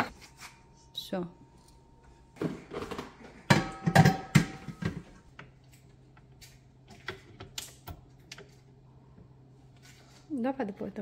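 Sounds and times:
dishes clanking with metallic ringing: 0:03.5 - 0:04.9.

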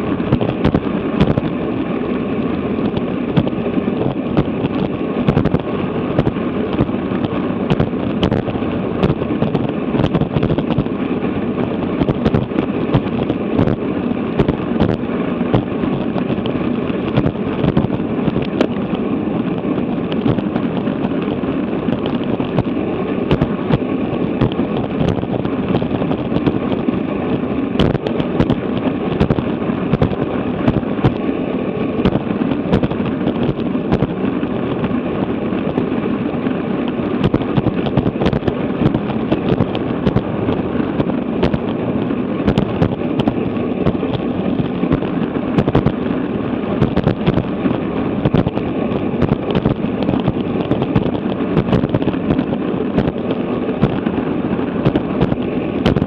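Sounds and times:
wind rushing over microphone: 0:00.0 - 0:56.0
crackling pops: 0:36.8 - 0:41.8, 0:42.4 - 0:46.0, 0:46.8 - 0:47.5.

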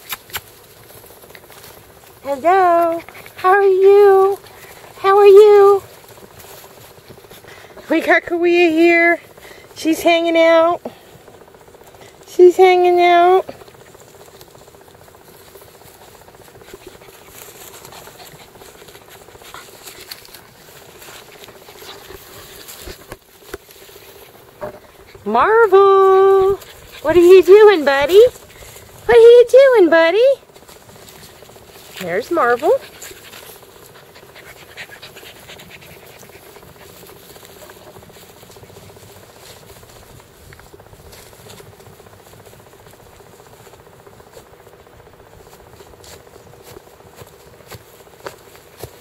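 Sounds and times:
faint steady drone: 0:00.0 - 0:49.0
puppies rustling on blanket: 0:13.0 - 0:49.0.

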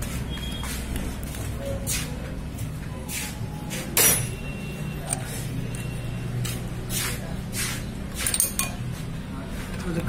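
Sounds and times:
spanner clinking and scraping: 0:08.1 - 0:08.9.

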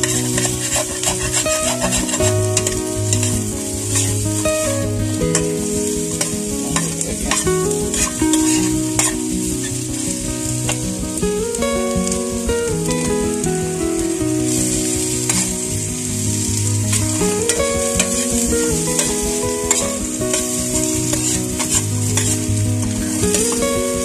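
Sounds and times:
metal spoon scraping a pan: 0:00.0 - 0:03.4, 0:04.0 - 0:04.2, 0:06.8 - 0:09.2
food sizzling in a wok: 0:00.0 - 0:09.8, 0:14.4 - 0:24.0
background music tones: 0:00.0 - 0:24.0.

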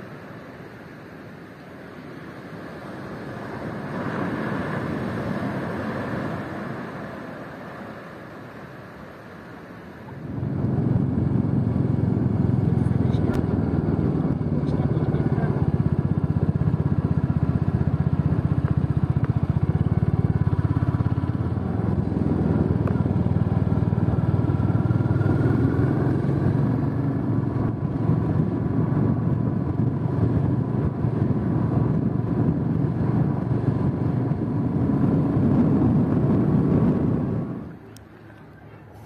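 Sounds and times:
vehicle engine running: 0:10.2 - 0:39.0.

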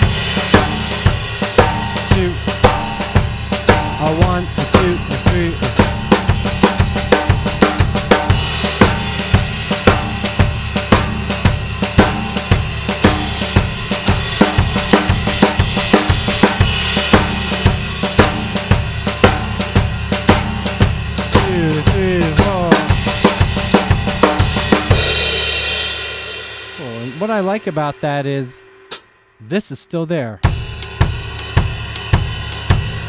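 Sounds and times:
snare drum: 0:00.0 - 0:25.2
bass drum: 0:00.0 - 0:29.1, 0:30.4 - 0:33.0
cymbals ringing: 0:25.3 - 0:29.4.

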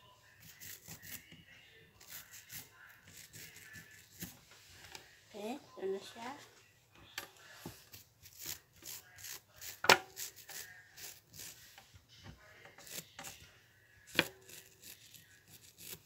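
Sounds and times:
plastic brush scratching toenails: 0:00.4 - 0:01.4, 0:02.0 - 0:04.4, 0:07.7 - 0:11.9, 0:12.7 - 0:13.5, 0:14.1 - 0:16.0.

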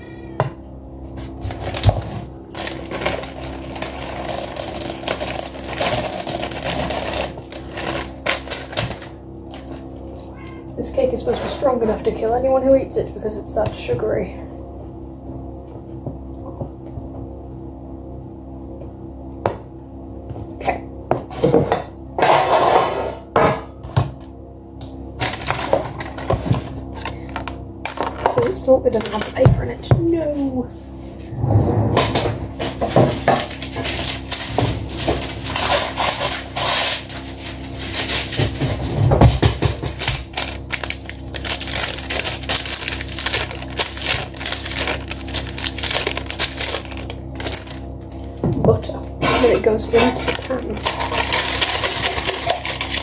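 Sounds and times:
low hum: 0:23.2 - 0:53.0
packet rustling and clicking: 0:39.9 - 0:48.2.

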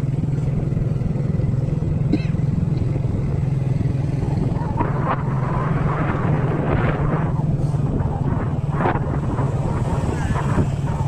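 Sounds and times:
vehicle engine droning: 0:00.0 - 0:11.0
wind on microphone: 0:03.0 - 0:11.0.

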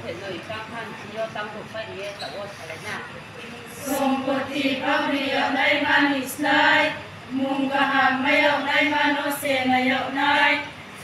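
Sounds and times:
women singing a cappella: 0:03.7 - 0:11.0.

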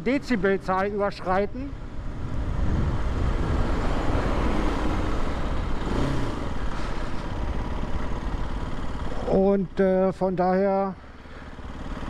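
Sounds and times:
motorcycle engine running: 0:00.0 - 0:12.0
wind rumble on microphone: 0:02.0 - 0:05.1.

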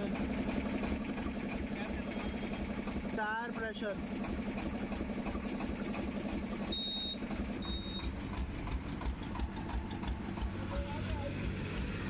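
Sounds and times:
car engine and tyre rumble: 0:00.0 - 0:12.0
short high electronic beeps: 0:06.7 - 0:08.1.

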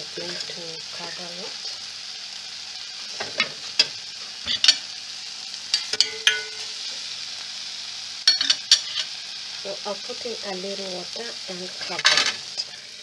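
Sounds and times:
curry frying in a pot: 0:00.0 - 0:13.0
metallic clinks against pot: 0:05.7 - 0:06.7, 0:08.3 - 0:09.1.

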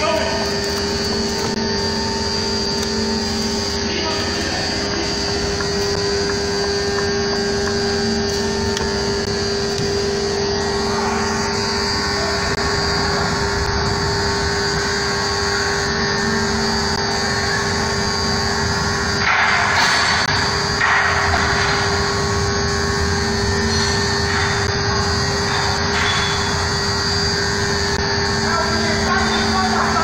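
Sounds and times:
heavy engines droning: 0:00.0 - 0:30.0
rushing noise: 0:10.6 - 0:16.3.

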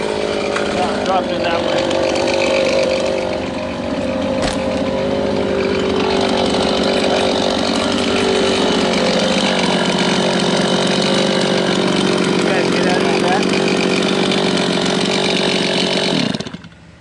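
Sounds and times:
chainsaw running: 0:00.0 - 0:17.0
sharp knock: 0:04.4 - 0:04.8.

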